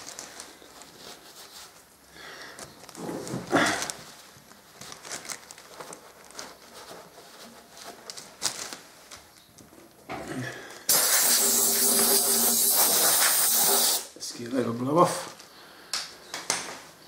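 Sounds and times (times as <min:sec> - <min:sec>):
paper towels rustling and rubbing: 0:00.0 - 0:09.3
compressed air blow gun hissing: 0:10.9 - 0:14.1.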